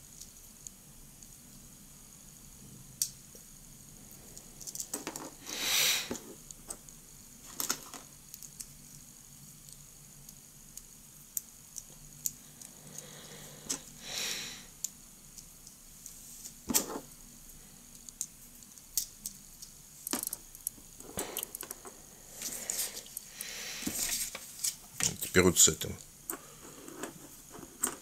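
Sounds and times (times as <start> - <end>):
plastic parts clicking and tapping: 7.5 - 8.8, 17.9 - 21.9
soft rustles: 20.7 - 25.4.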